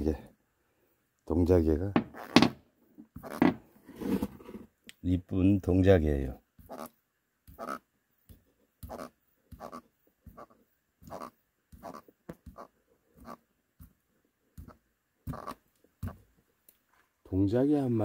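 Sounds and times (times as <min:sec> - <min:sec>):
catfish rasping croaks: 0:06.6 - 0:07.9, 0:08.8 - 0:13.4, 0:14.6 - 0:16.2.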